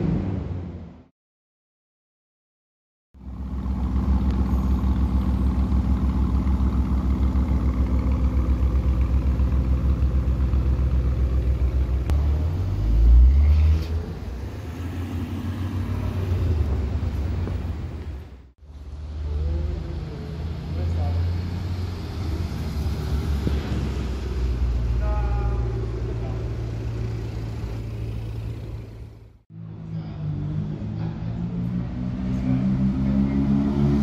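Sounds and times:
car engine idling: 0:03.2 - 0:12.6, 0:25.0 - 0:29.4
engine revving: 0:03.6 - 0:18.0, 0:19.4 - 0:34.0.

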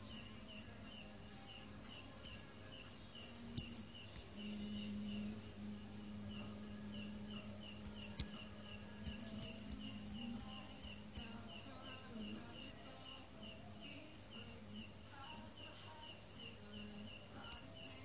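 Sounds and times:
insect chirping: 0:00.0 - 0:18.0
low steady hum: 0:00.0 - 0:18.0
sharp clicks: 0:03.2 - 0:04.4, 0:06.3 - 0:11.6, 0:17.4 - 0:17.8.

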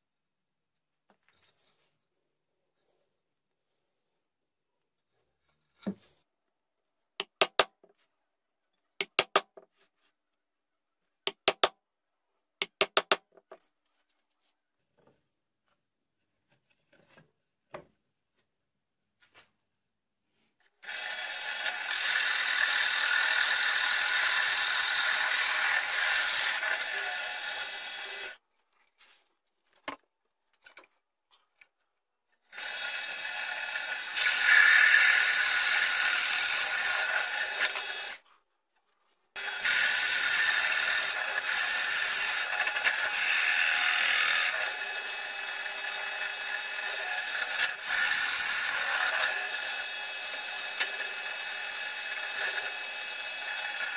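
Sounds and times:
drill bit boring into wood: 0:20.8 - 0:28.4, 0:32.5 - 0:38.2, 0:39.4 - 0:53.9.

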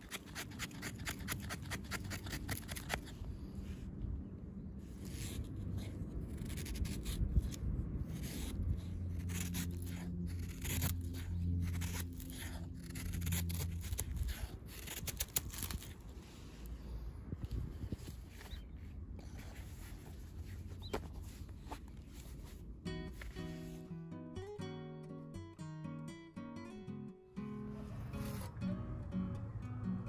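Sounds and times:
knife scraping wooden stick: 0:00.0 - 0:03.3, 0:05.0 - 0:16.4.

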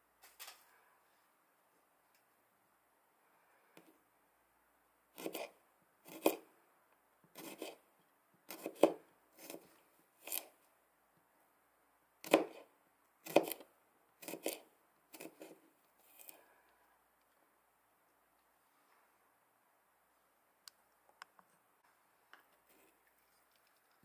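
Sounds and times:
knife cutting on plastic board: 0:05.2 - 0:06.4, 0:07.3 - 0:07.8, 0:08.5 - 0:10.5, 0:12.2 - 0:16.4.

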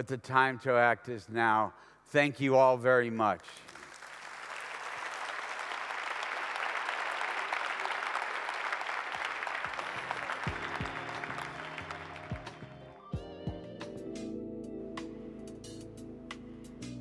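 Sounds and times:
audience applauding: 0:03.6 - 0:13.1.

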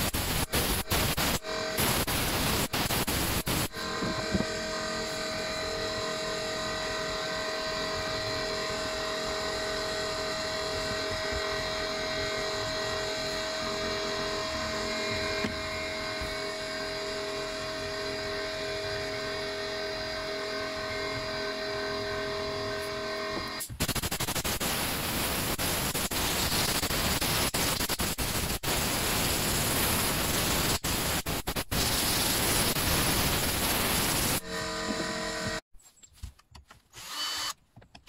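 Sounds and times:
loud steady hiss: 0:00.0 - 0:03.8, 0:23.6 - 0:34.4
machine hum with whining tones: 0:00.0 - 0:26.9, 0:31.9 - 0:35.6.

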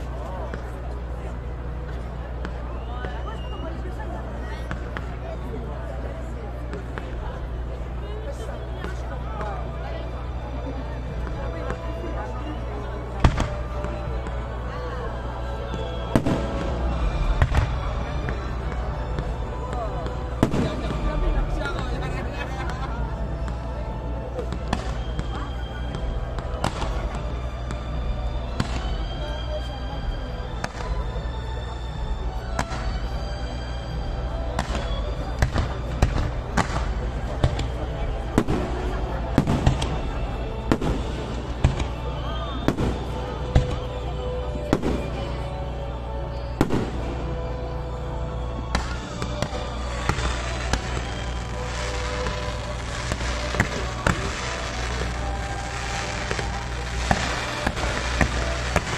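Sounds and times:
music: 0:00.0 - 0:58.9
fireworks hissing crackle: 0:11.2 - 0:45.4, 0:48.6 - 0:58.9
firework bangs: 0:15.8 - 0:22.8, 0:34.6 - 0:43.9, 0:46.6 - 0:47.1, 0:48.6 - 0:58.9
firework cracks: 0:48.7 - 0:58.9.

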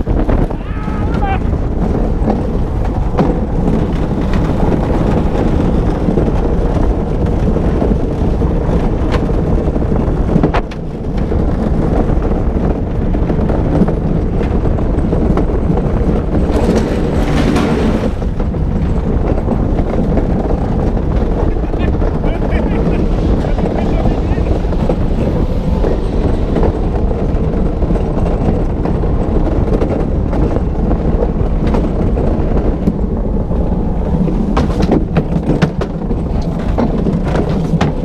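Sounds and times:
wheels rumbling on asphalt: 0:00.0 - 0:38.0
wind on microphone: 0:00.0 - 0:38.0.

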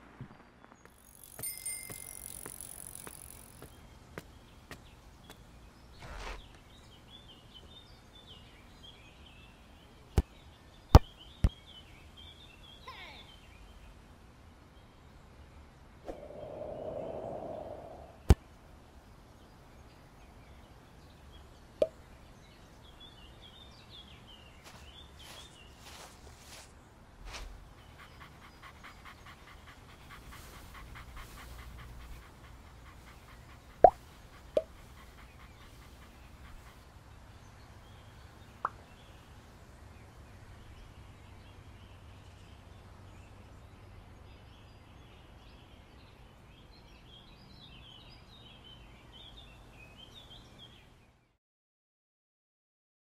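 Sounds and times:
quiet park ambience: 0:00.0 - 0:51.3
birds twittering: 0:27.3 - 0:39.3
dog panting: 0:27.6 - 0:37.1.

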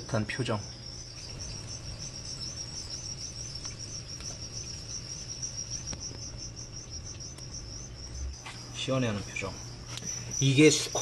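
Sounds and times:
cricket chirping: 0:00.0 - 0:11.0
low steady hum: 0:00.0 - 0:11.0
faint ticks: 0:07.0 - 0:07.5.

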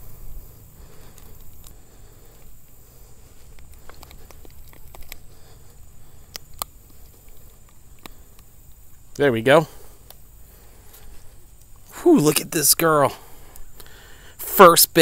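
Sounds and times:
low steady rumble: 0:00.0 - 0:12.1
small sharp clicks: 0:03.5 - 0:09.2.

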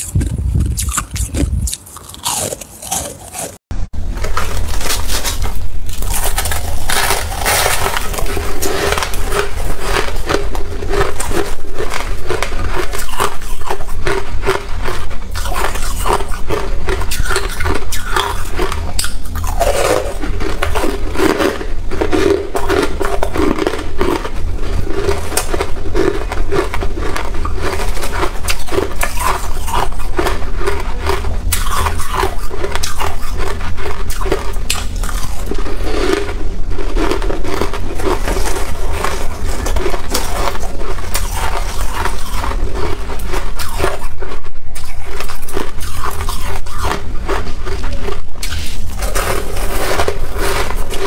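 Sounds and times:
crunching and chewing frost: 0:00.0 - 0:51.0
steady low hum: 0:00.0 - 0:51.0.

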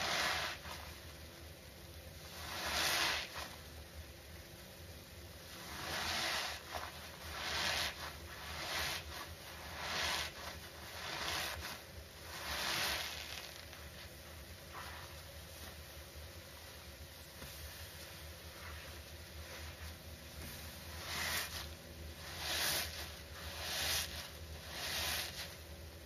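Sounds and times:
wet sponge squishing: 0:00.0 - 0:01.0, 0:02.2 - 0:03.6, 0:05.5 - 0:14.1, 0:14.7 - 0:15.8, 0:18.5 - 0:25.6.

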